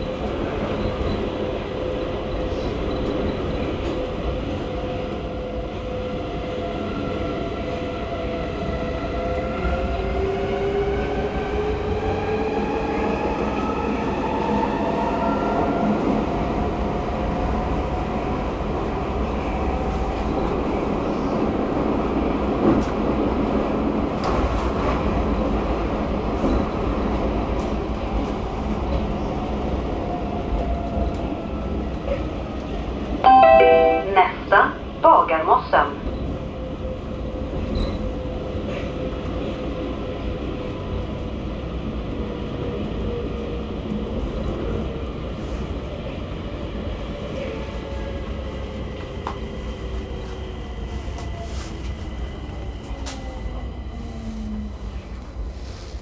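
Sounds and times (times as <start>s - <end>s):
train wheels rumbling on track: 0.0s - 33.2s, 34.2s - 56.0s.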